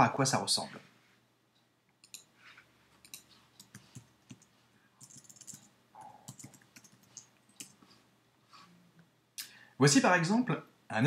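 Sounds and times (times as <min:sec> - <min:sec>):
keyboard keys clicking: 0:03.0 - 0:07.8.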